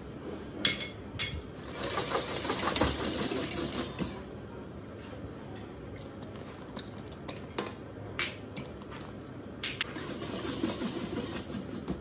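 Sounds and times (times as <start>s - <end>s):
whisk clinking against metal bowl: 0.7s - 4.2s, 9.6s - 12.0s
whisking batter: 1.6s - 4.2s, 9.8s - 12.0s.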